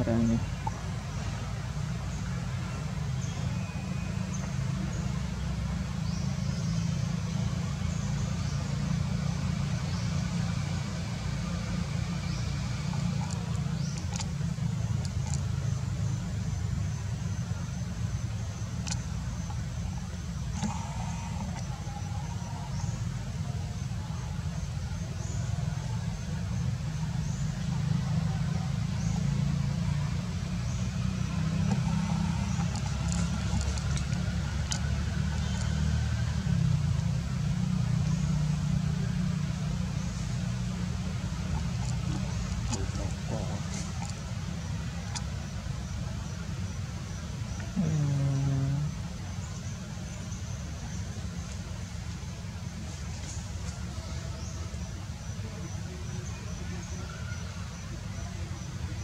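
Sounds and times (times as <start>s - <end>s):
steady low rumble: 7.7s - 53.6s.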